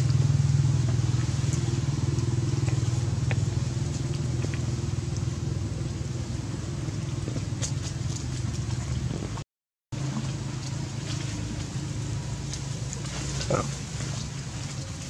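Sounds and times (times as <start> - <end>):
small engine running: 0.0 - 9.4.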